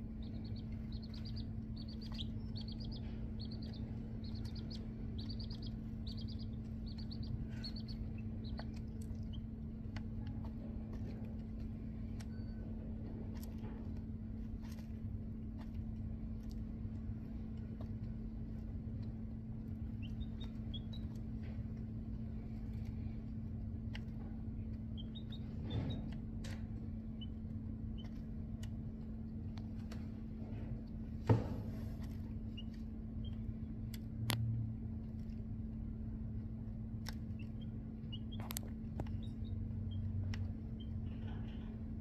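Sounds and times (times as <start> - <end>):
beaks clicking on plastic feeder: 0.0 - 30.2
chicks peeping: 0.0 - 34.3, 35.0 - 42.0
steady low hum: 0.0 - 42.0.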